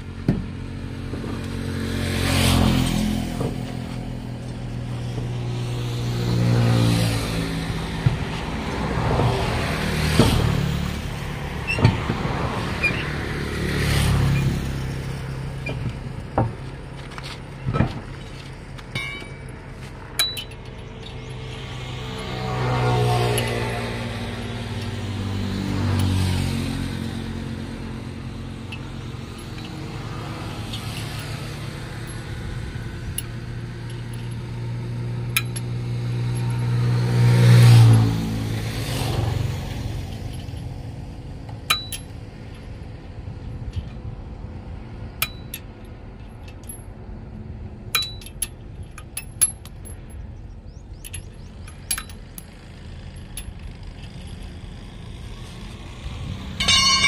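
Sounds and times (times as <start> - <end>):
vehicle engine: 0.0 - 57.0
sharp metallic clinks: 18.9 - 22.5, 28.2 - 34.6, 35.3 - 36.7, 41.7 - 42.7, 45.2 - 47.0, 47.9 - 55.6, 56.6 - 57.0.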